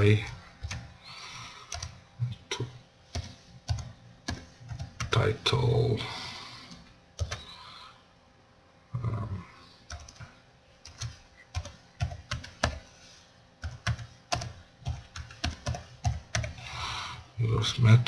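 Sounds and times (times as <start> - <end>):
computer keyboard typing: 0.0 - 0.9, 1.6 - 2.0, 3.1 - 5.3, 6.7 - 7.5, 9.9 - 12.9, 13.6 - 16.6.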